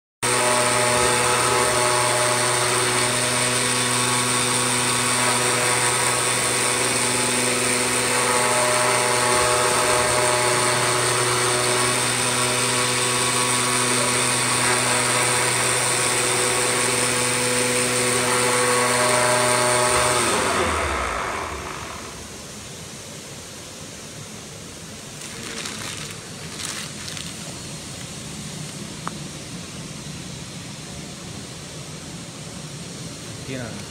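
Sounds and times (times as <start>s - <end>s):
cutting machine hum with whine: 0.2s - 22.7s.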